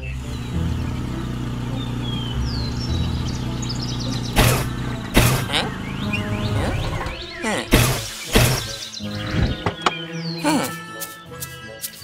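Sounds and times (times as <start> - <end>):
cartoon car engine running: 0.0 - 9.3
birds chirping: 0.0 - 12.0
car backfiring bangs: 0.1 - 8.9.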